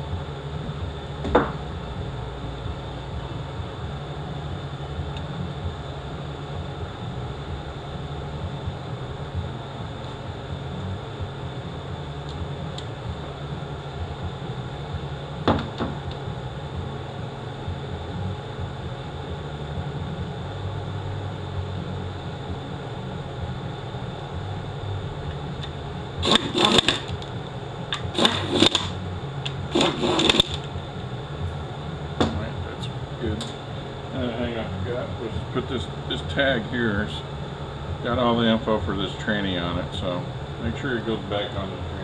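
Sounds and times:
low shop hum: 0.0 - 42.0
sharp metal click: 28.0 - 30.7.

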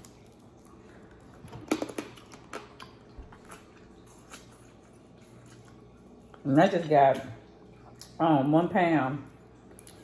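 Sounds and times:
person eating with wet smacking: 0.0 - 6.5, 7.4 - 8.2, 9.3 - 10.0.

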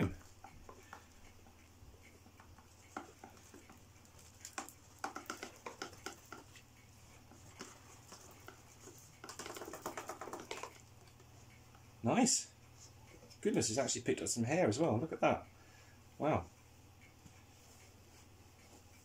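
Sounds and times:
debris ticking into plastic tray: 9.2 - 10.8.

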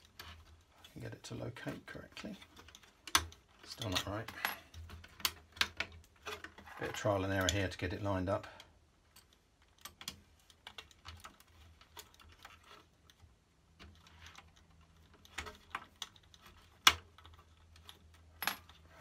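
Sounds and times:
fingers clicking tape mechanism parts: 2.2 - 6.6, 8.6 - 18.2.

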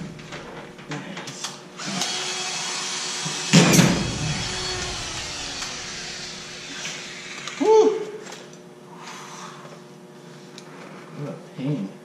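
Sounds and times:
loud thud: 3.6 - 7.2.

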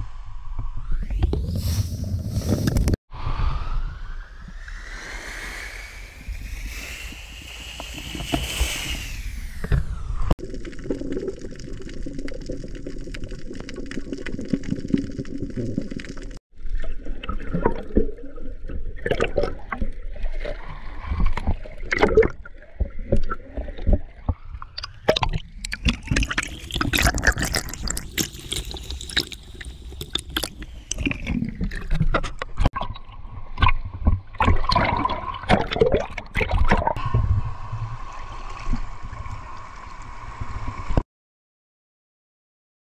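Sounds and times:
rising whine: 3.1 - 10.4
water splashing and gurgling: 10.4 - 41.0.

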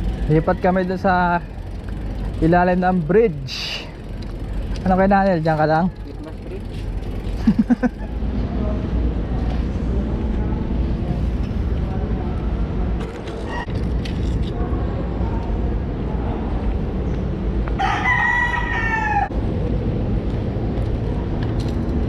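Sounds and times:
rooster crowing: 17.8 - 19.3.

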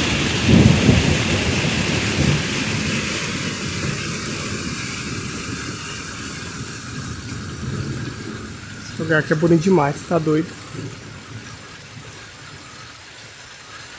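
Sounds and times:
thunder rolling: 0.0 - 12.9
rain falling on river: 0.0 - 13.9.

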